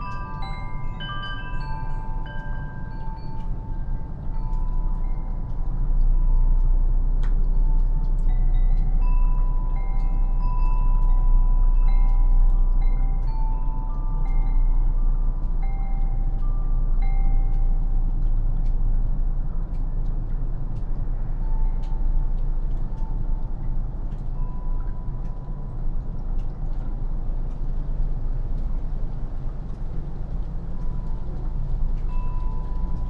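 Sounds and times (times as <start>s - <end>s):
wind chimes ringing: 0.0s - 18.2s, 21.2s - 26.1s, 32.0s - 33.0s
low rumble: 0.0s - 33.0s
snow dripping ticks: 0.0s - 33.0s.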